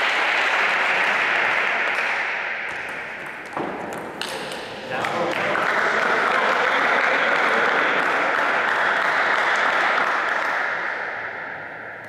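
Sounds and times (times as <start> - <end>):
spectators applauding: 0.0 - 3.0, 4.9 - 11.1.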